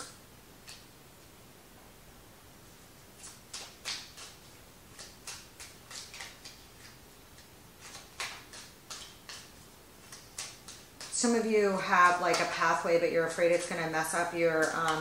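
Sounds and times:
cards being shuffled: 0:03.2 - 0:11.2.

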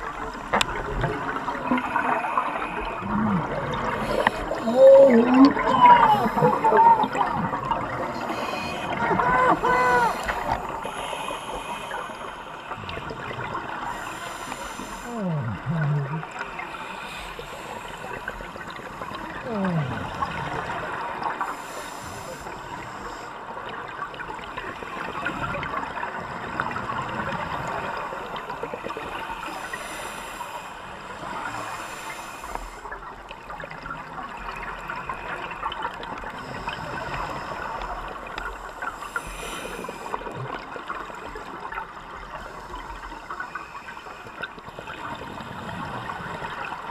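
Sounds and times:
underwater bubbles gurgling: 0:00.0 - 0:46.9
hissing regulator breaths: 0:13.9 - 0:15.1.

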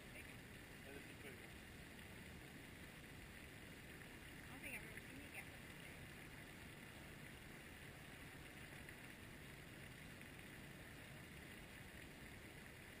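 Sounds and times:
faint outdoor hiss: 0:00.0 - 0:13.0.

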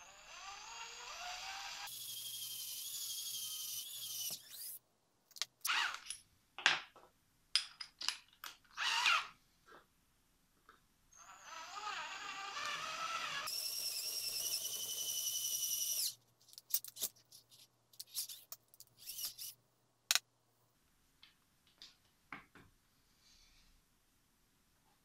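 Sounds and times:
cordless drill whining: 0:11.2 - 0:16.2.

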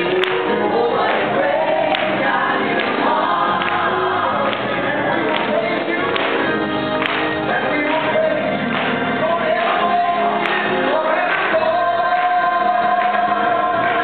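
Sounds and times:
group singing gospel: 0:00.0 - 0:14.0.

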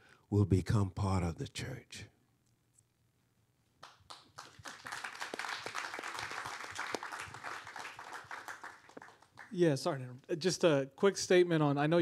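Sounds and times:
audience clapping: 0:03.8 - 0:09.9.

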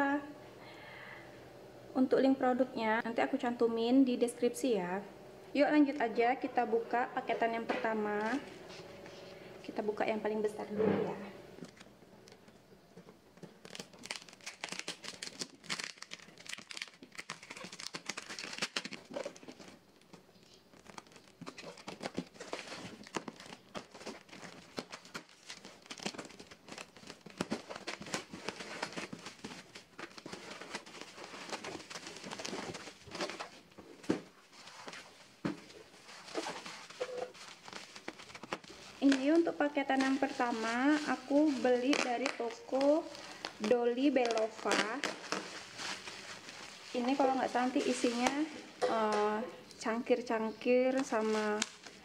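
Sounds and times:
plastic wrap tearing and crinkling: 0:11.6 - 0:12.4, 0:13.3 - 0:48.6, 0:50.8 - 0:52.0
bubble wrap crinkling: 0:11.6 - 0:49.4, 0:50.2 - 0:52.0
cardboard rustling and scraping: 0:13.4 - 0:48.5.

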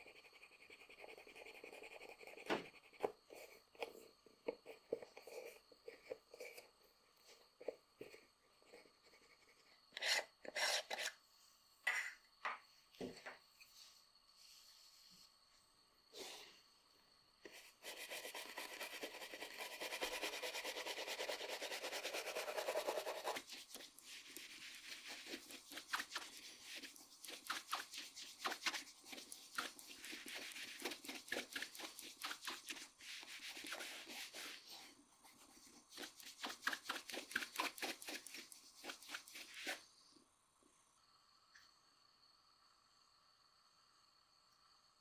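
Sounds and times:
fingers rubbing polish on shoe: 0:17.5 - 0:39.8.

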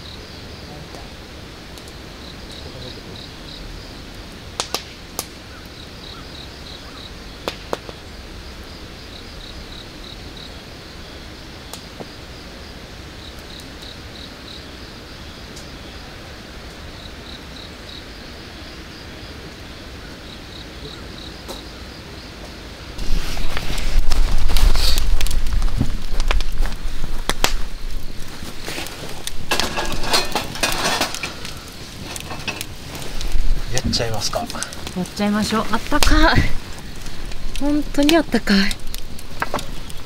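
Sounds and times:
crickets chirping: 0:00.0 - 0:40.0.

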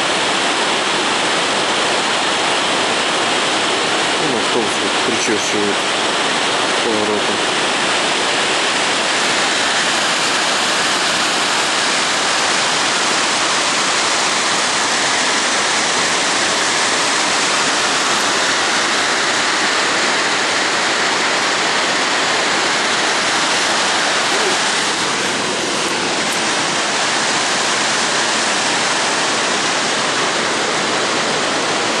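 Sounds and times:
waterfall rushing: 0:00.0 - 0:32.0.

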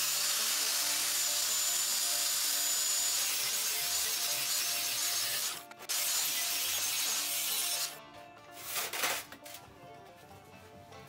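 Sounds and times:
angle grinder cutting steel: 0:00.0 - 0:08.0
background music: 0:00.0 - 0:11.0.

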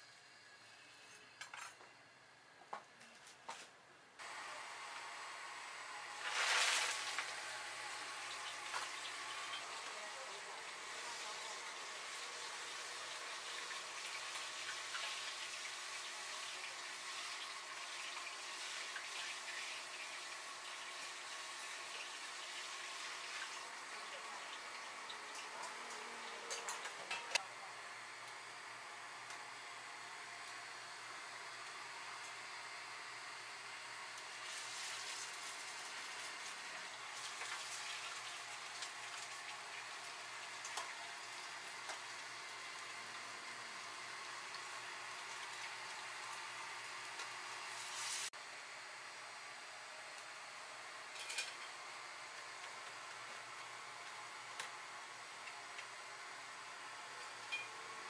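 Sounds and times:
hot oil sizzling in a fryer: 0:04.2 - 0:27.1, 0:31.6 - 0:48.4.

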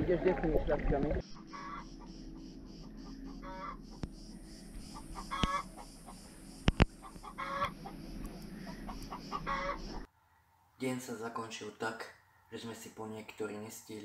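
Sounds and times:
chickens clucking: 0:01.2 - 0:10.1
high-pitched buzz: 0:01.2 - 0:10.1.

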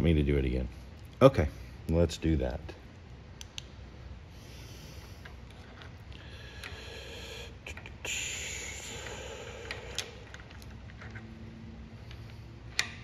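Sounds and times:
hiss: 0:06.8 - 0:09.9.

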